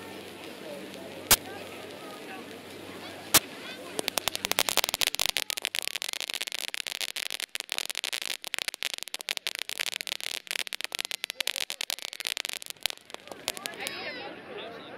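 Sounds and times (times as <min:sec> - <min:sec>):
firework fountain hissing: 0:00.0 - 0:14.3
firework fountain crackling: 0:00.0 - 0:14.5.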